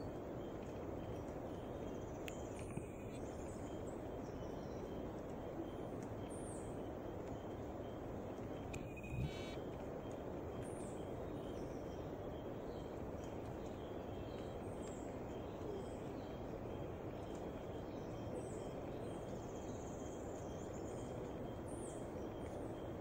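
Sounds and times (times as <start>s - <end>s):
background hiss: 7.5s - 10.0s.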